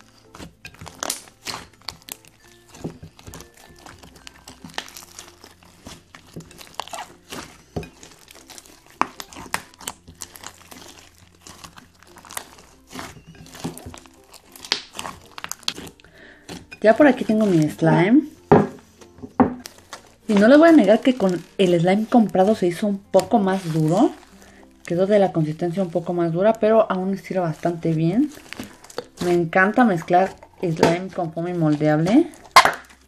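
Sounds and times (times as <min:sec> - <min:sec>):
sticky slime pops and crackles: 0:00.0 - 0:17.8, 0:19.6 - 0:26.6, 0:27.7 - 0:31.1, 0:32.0 - 0:33.0
quiet background music: 0:00.0 - 0:33.0.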